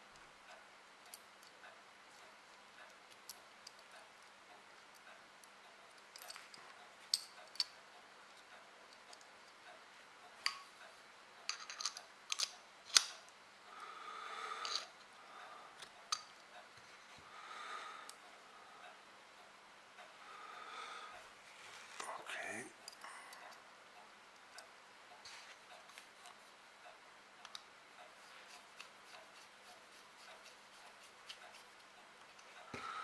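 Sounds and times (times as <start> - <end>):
metal parts clicking: 11.5 - 13.1
soft rubbing and handling: 21.2 - 22.3, 25.1 - 26.6, 28.0 - 32.8.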